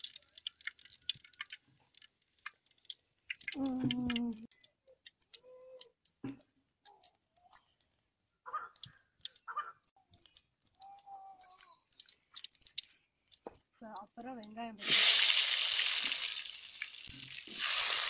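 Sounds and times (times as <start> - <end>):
wood fire crackling: 0.0 - 18.0
faint pitched calls: 8.4 - 9.9.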